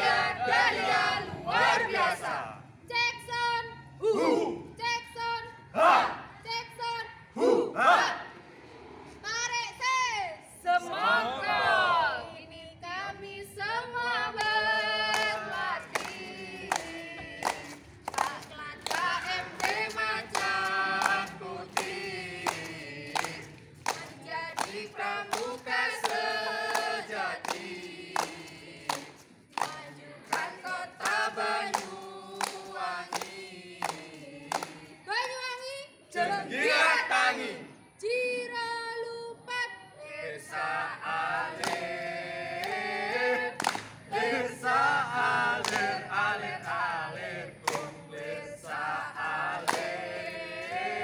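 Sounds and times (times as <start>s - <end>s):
group singing and chanting cheer: 0.0s - 2.8s, 4.0s - 4.8s, 5.6s - 6.5s, 7.3s - 8.4s, 10.6s - 35.5s, 36.1s - 38.0s, 39.5s - 51.0s
hand claps: 14.3s - 35.0s, 41.5s - 41.9s, 42.6s - 42.8s, 43.6s - 46.9s, 47.6s - 50.9s.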